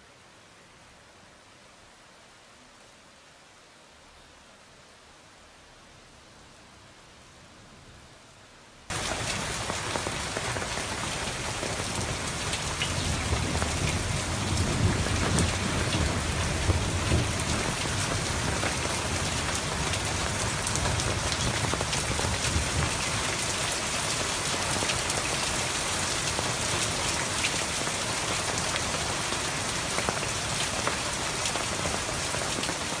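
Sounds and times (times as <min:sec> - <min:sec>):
low rumble of thunder: 0:08.9 - 0:27.4
heavy rain pouring: 0:08.9 - 0:33.0.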